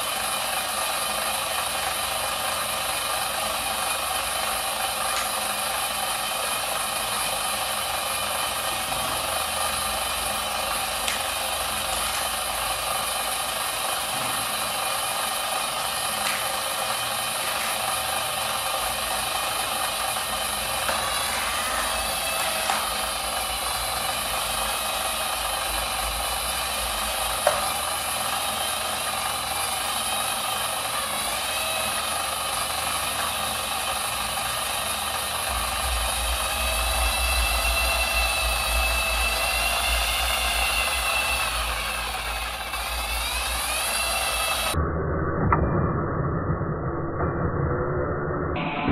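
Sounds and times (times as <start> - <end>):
treadmill belt hissing: 0.0 - 44.8
treadmill motor whining: 0.0 - 44.9
deep hum: 35.4 - 48.9.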